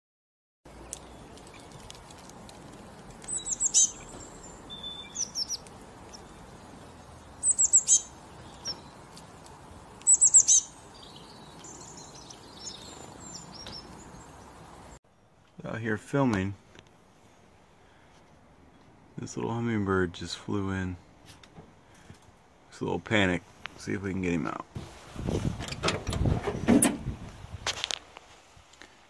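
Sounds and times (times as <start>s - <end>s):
songbird singing: 0.7s - 16.9s.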